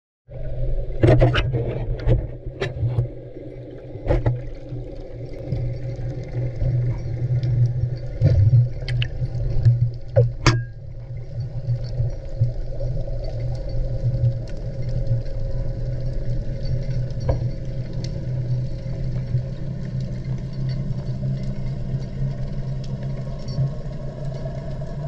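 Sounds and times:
steady low underwater hum: 0.3 - 25.0.

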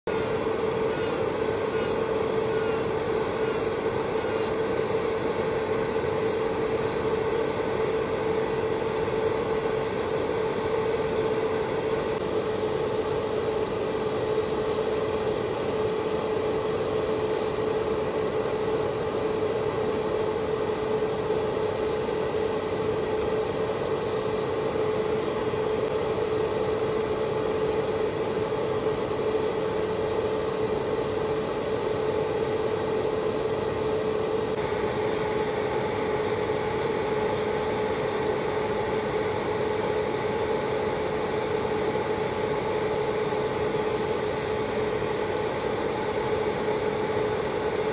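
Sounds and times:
small electric motor humming: 0.1 - 12.2, 34.5 - 47.9
nail file rasping: 0.2 - 10.3.

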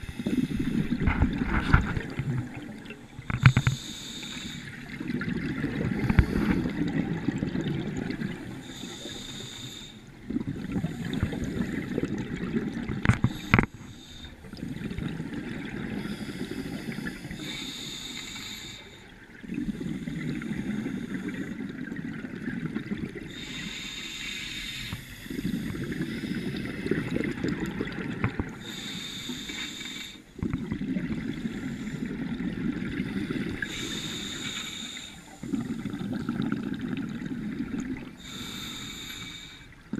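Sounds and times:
regulator inhale hiss: 0.0 - 1.2, 3.2 - 4.9, 5.9 - 6.8, 8.5 - 10.1, 13.2 - 14.6, 16.0 - 21.6, 23.3 - 27.4, 28.6 - 30.4, 31.4 - 32.2, 33.0 - 35.9, 38.2 - 39.8.

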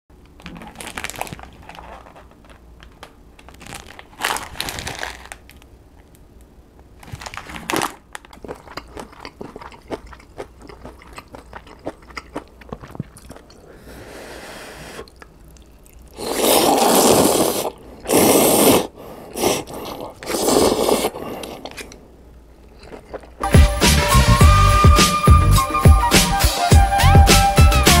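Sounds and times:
plastic packets crinkling: 0.2 - 6.2, 7.0 - 10.0
slurping noodles: 8.6 - 15.2, 16.0 - 22.0.

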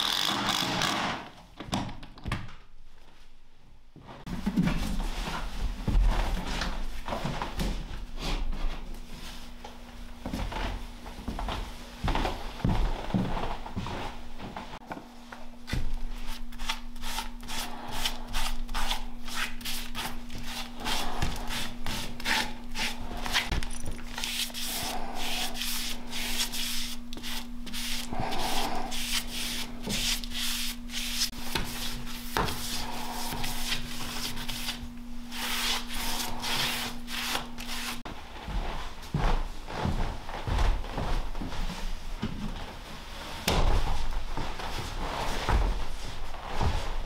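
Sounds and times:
brush strokes on wood: 24.1 - 38.0.

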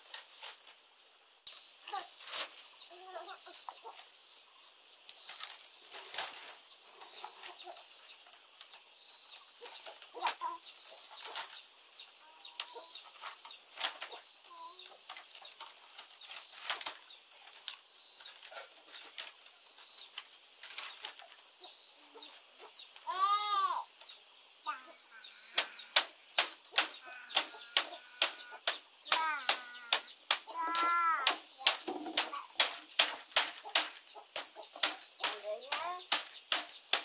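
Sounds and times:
bamboo strips clicking and rustling: 2.2 - 2.7, 5.1 - 8.9, 9.8 - 11.7, 12.5 - 14.2, 15.0 - 21.5, 25.6 - 37.0.

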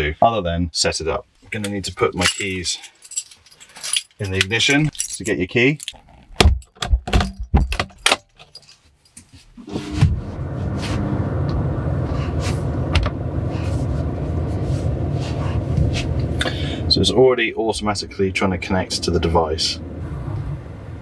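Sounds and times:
keys jangling: 2.2 - 9.4
diesel engine starting and idling: 9.7 - 21.0.

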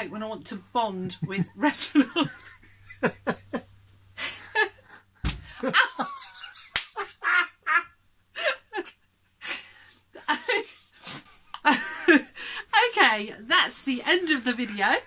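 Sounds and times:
woman laughing: 1.0 - 7.8, 11.6 - 12.5
dull thump: 5.2 - 5.6.

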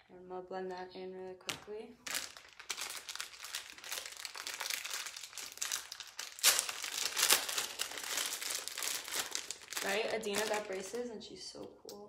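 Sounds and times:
close rustling and crinkling: 2.0 - 11.1.

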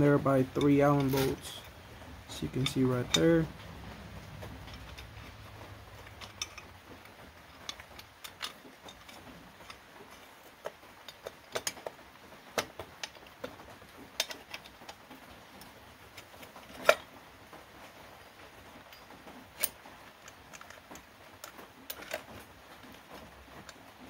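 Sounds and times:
light metallic clicks and taps: 0.0 - 15.0.

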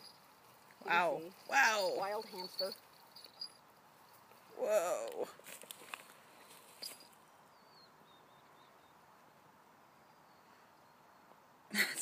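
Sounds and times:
rustling: 0.0 - 7.2.

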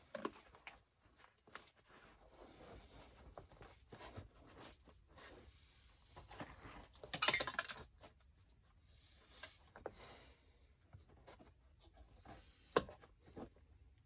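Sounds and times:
metal parts clinking in a tub: 6.7 - 7.8.

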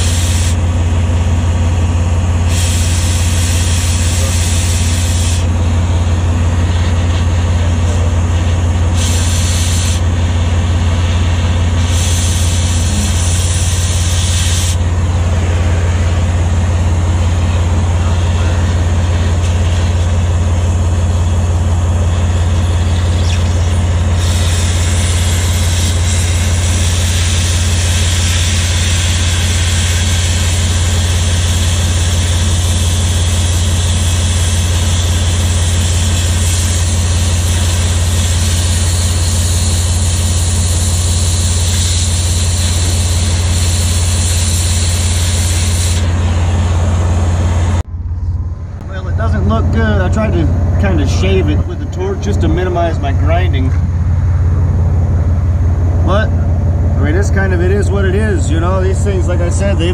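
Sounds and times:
cutting torch hissing: 0.0 - 0.6, 2.4 - 5.7, 6.5 - 15.6, 22.1 - 46.8
engine idling: 0.0 - 59.9.

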